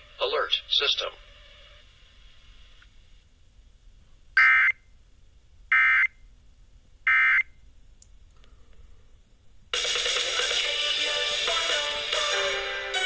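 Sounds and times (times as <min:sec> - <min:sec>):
harsh digital squawks from radio: 0:00.0 - 0:02.4.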